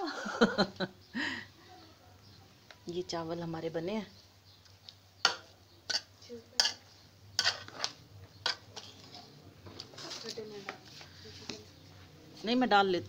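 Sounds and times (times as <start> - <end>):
spoon scraping metal pot: 5.2 - 9.4.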